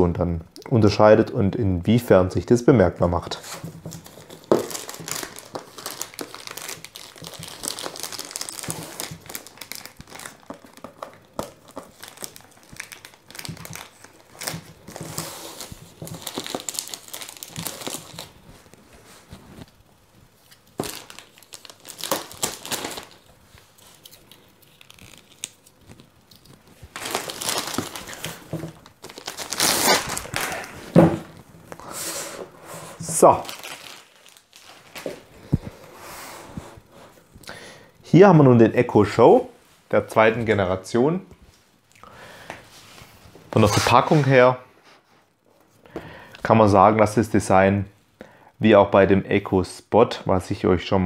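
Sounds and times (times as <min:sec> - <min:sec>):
plastic film crinkling: 0:03.2 - 0:35.9, 0:43.5 - 0:44.5.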